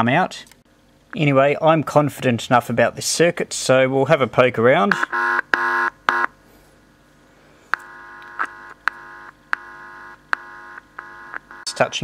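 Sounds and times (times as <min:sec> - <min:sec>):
radio speaker buzzing with hum: 0:04.8 - 0:06.4, 0:07.7 - 0:12.0.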